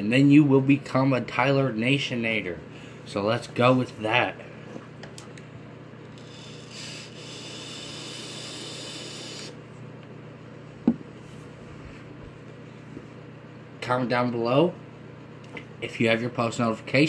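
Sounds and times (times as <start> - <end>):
vape hissing and crackling: 6.1 - 9.6.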